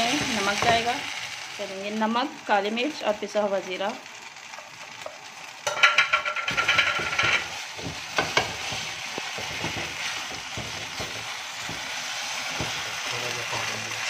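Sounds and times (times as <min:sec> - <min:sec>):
low sizzle from pan: 0:00.0 - 0:14.0
spatula scraping a frying pan: 0:05.6 - 0:13.1.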